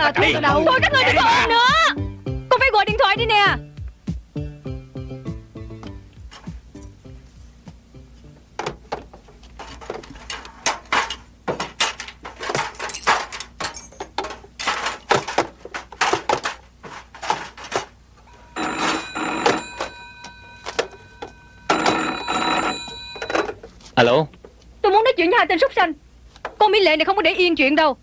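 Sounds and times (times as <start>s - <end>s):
objects knocking and clattering: 8.6s - 23.8s
telephone bell ringing: 18.3s - 23.6s.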